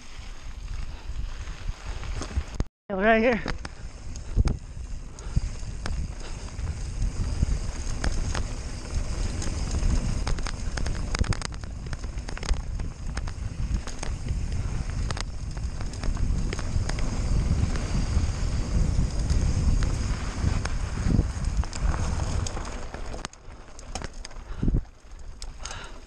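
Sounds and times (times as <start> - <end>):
bike rattling: 0.0 - 26.0
wind on microphone: 3.3 - 23.2, 24.5 - 24.9
tyres crunching on gravel: 3.3 - 26.0.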